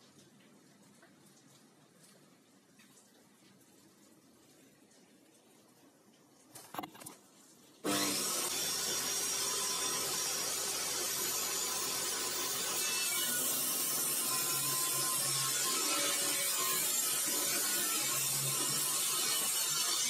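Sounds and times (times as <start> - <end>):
table saw cutting board: 7.8 - 20.0.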